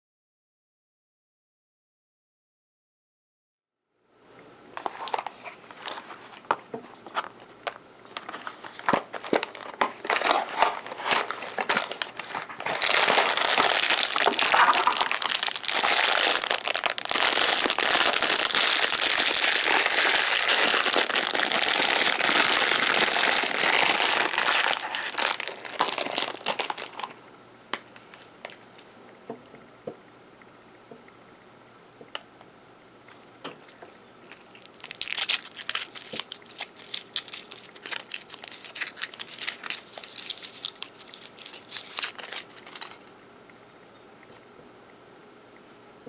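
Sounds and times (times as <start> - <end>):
plastic bag crinkling: 4.8 - 27.2, 33.2 - 43.2.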